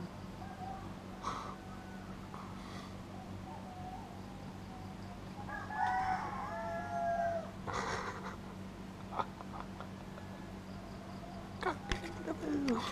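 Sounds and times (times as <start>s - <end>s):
rooster crowing: 0.4s - 4.1s, 5.4s - 7.6s, 9.8s - 12.0s.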